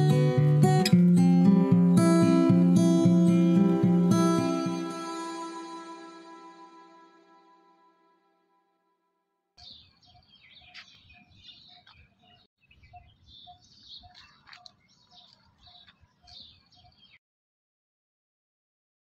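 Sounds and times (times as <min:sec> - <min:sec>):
high bird chirps: 0:09.6 - 0:17.2.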